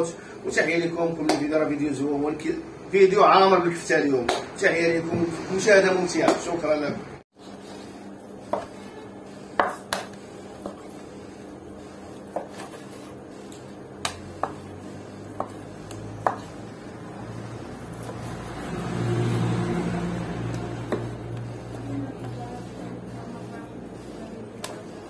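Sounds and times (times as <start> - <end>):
knife tapping on wooden board: 16.2 - 16.5.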